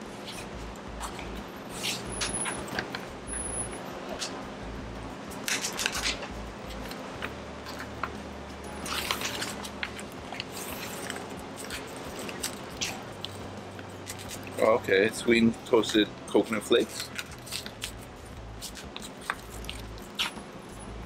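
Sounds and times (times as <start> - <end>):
wrapping crinkling and tearing: 8.9 - 13.4, 14.0 - 14.7, 16.8 - 20.3.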